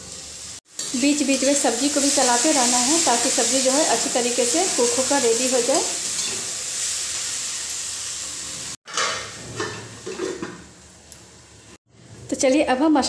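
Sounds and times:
beans sizzling in oil: 0.0 - 8.8.

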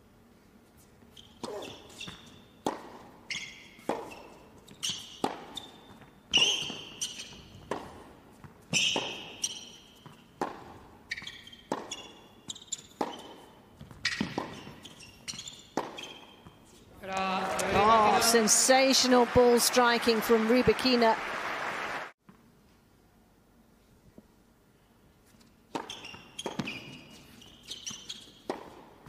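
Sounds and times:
shoes squeaking on court: 0.7 - 17.0, 25.2 - 29.0
racquet striking tennis ball: 1.4 - 16.6, 28.2 - 29.0
tennis ball bouncing: 1.4 - 18.1, 25.7 - 29.0.

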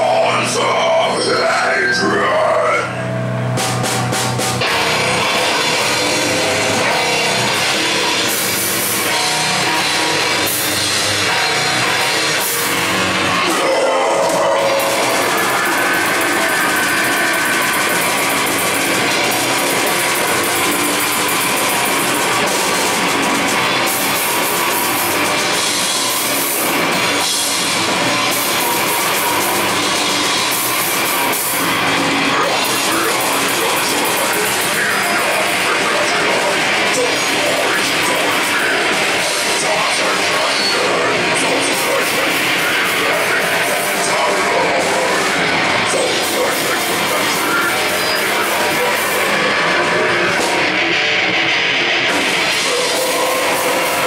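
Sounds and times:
heavy metal band playing live: 0.0 - 54.0.

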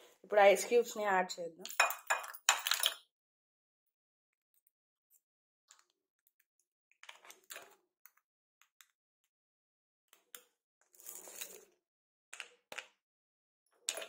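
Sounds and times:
ice clicking against glass: 1.6 - 3.0.

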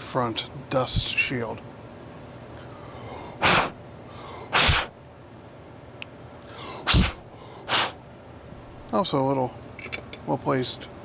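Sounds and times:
puffs of air blown: 2.7 - 5.0, 6.5 - 8.0.

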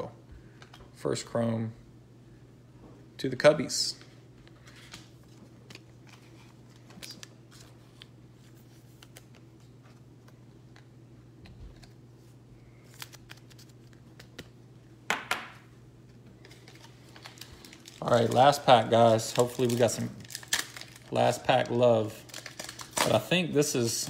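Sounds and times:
low electrical hum: 0.0 - 24.0
trading cards and wrappers rustling: 4.4 - 10.9, 11.6 - 14.5, 16.4 - 24.0.

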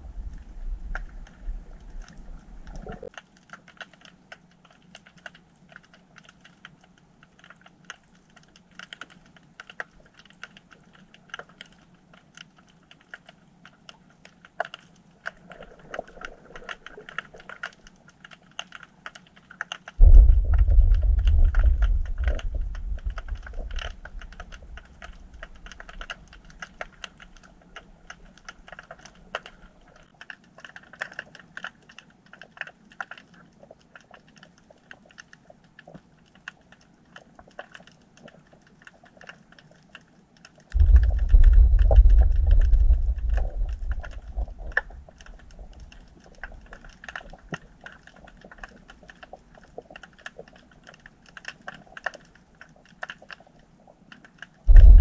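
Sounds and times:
deep earthquake rumble: 0.0 - 3.1, 20.0 - 27.0, 40.8 - 47.0, 54.7 - 55.0
underwater crackle of clicks: 0.0 - 55.0.

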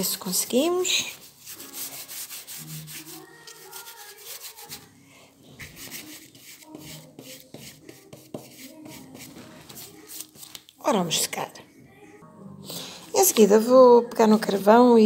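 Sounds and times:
brush scrubbing paint on surface: 0.8 - 4.9, 5.5 - 10.5.

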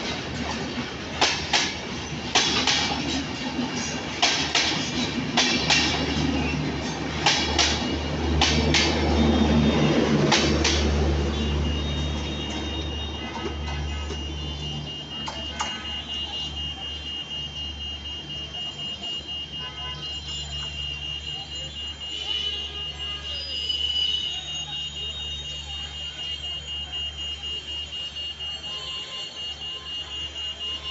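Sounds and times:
train rumbling past: 0.0 - 14.9
crossing alarm beeping: 0.0 - 30.9.

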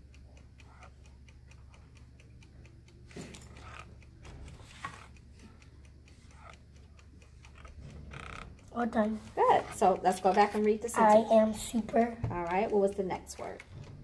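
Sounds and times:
low steady hum: 0.0 - 14.0
marker scratching on paper: 4.5 - 5.1, 6.1 - 6.6.

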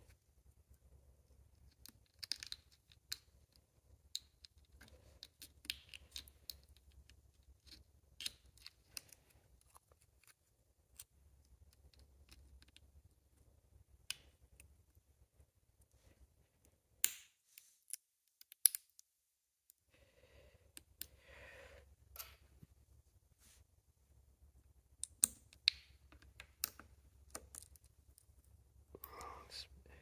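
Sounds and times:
small clicks and scrapes: 1.5 - 12.9
faint low hum: 26.2 - 30.0.

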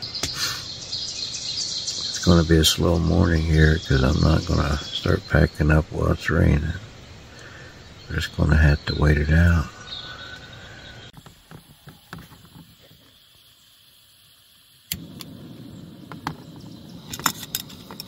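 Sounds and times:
gas burner hissing: 0.0 - 1.3, 1.9 - 18.0
lighter clicks: 14.9 - 15.4
gas burner igniting pop: 14.9 - 18.0.

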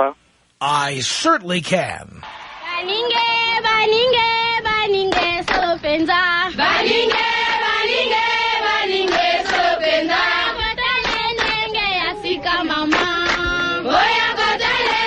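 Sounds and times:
voices chanting together: 6.6 - 10.6, 13.5 - 15.0.

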